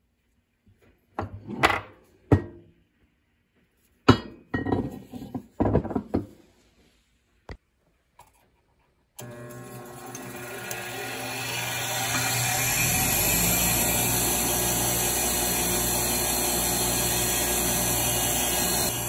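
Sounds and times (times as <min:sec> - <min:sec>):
bench grinder motor starting: 0:09.2 - 0:19.0.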